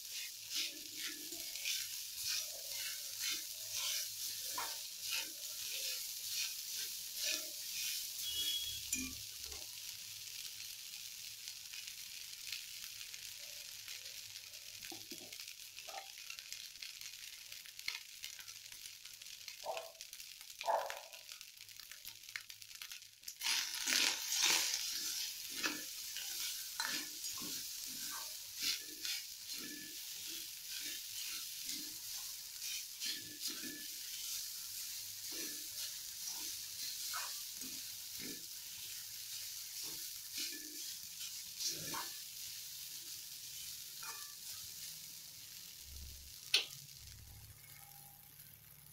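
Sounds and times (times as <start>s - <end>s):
steel spoon scraping a pan: 0.0s - 9.6s, 23.4s - 44.9s
rice sizzling in oil: 0.0s - 48.9s.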